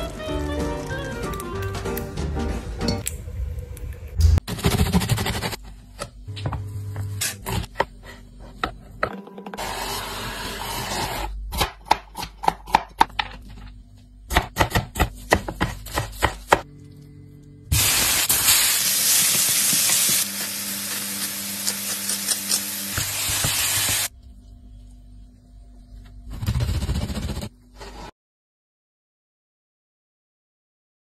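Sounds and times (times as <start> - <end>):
knife chopping on cutting board: 14.3 - 16.6
vegetables sizzling in a pan: 17.7 - 24.1.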